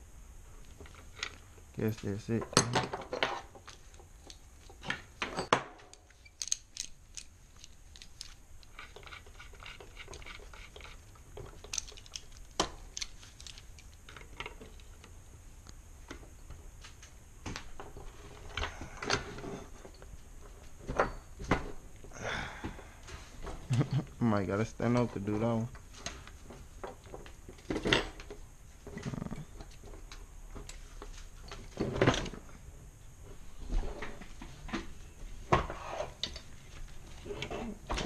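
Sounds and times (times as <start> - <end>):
metal tools clinking on wood: 0.9 - 14.9.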